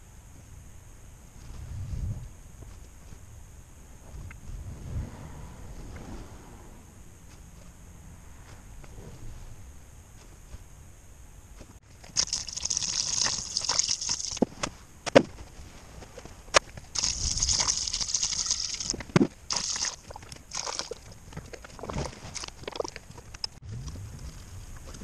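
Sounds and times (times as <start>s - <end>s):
fluid pouring into funnel: 12.1s - 14.4s.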